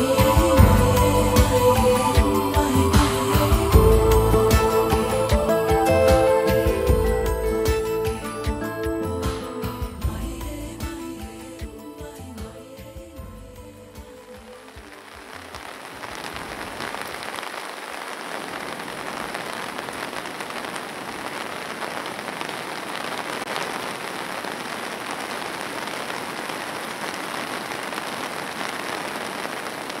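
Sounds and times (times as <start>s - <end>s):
rain pattering on grass: 14.0s - 30.0s.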